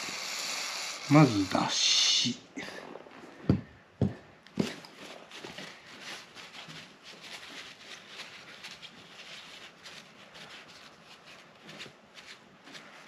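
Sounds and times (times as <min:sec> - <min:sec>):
tissue paper rustling: 0:04.6 - 0:13.0.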